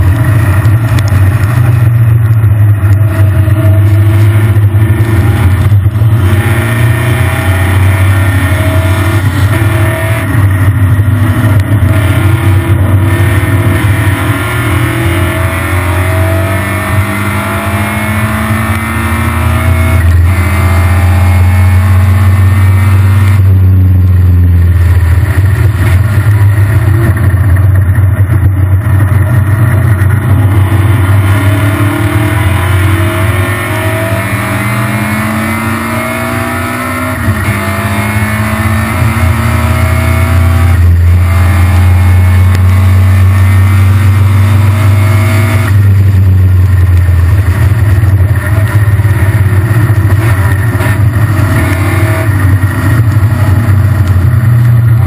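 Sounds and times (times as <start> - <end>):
race car engine revving: 0.0 - 55.0.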